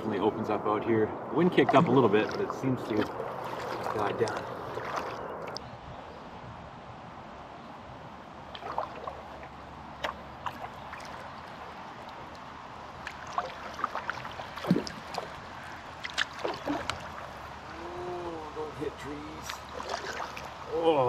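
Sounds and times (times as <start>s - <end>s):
water splashes and drips: 1.5s - 5.6s, 8.4s - 21.0s
kayak paddle strokes: 1.6s - 5.6s, 8.5s - 17.8s, 19.0s - 20.7s.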